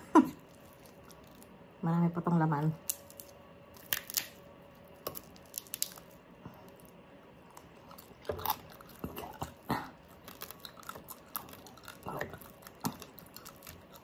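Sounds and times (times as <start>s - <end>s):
crackling skin: 0.4s - 1.6s, 2.8s - 14.0s
tearing meat by hand: 2.8s - 7.0s, 7.6s - 14.0s.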